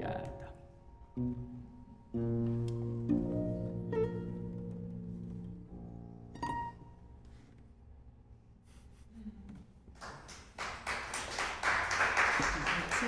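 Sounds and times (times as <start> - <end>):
guitar: 0.0 - 7.6
applause: 10.0 - 13.0.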